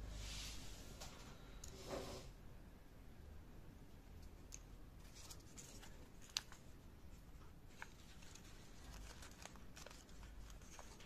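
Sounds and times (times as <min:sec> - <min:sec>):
paper rustling: 0:05.0 - 0:06.7, 0:07.7 - 0:11.0.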